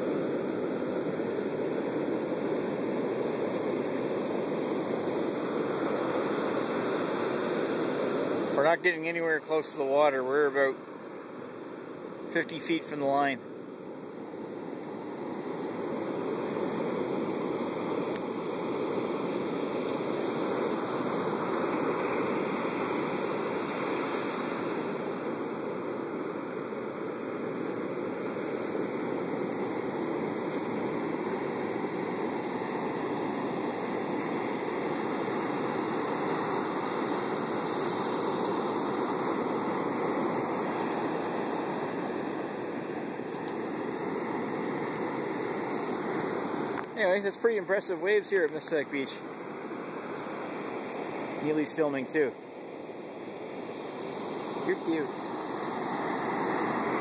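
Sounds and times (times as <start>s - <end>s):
heavy surf breaking on a beach: 0.0s - 57.0s.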